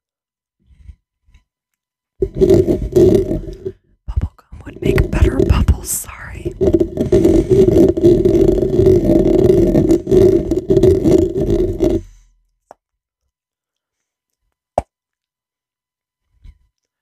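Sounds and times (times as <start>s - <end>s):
fingernails scratching a microphone: 2.2s - 3.8s, 4.6s - 12.2s.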